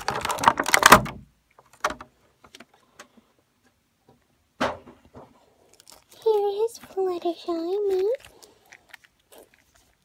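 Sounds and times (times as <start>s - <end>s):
plastic bag crinkling: 0.0s - 1.1s, 5.6s - 10.0s.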